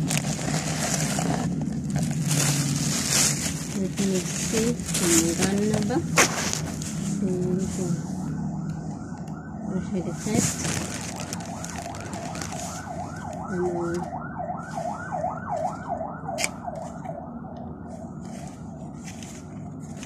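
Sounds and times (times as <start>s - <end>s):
plastic rustle: 0.0s - 17.1s, 17.8s - 20.0s
siren in fast yelp: 7.6s - 10.8s, 11.5s - 18.7s.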